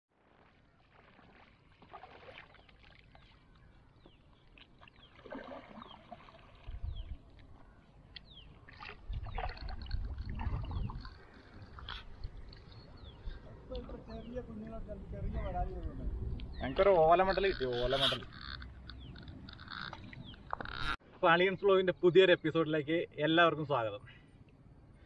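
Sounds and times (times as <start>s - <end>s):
paddle strokes splashing: 0.1s - 12.8s.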